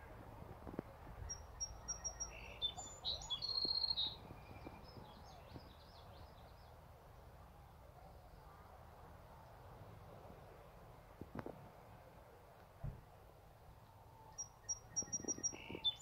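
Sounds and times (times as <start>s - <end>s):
low outdoor background: 0.0s - 16.0s
songbird singing: 0.9s - 8.6s, 13.6s - 16.0s.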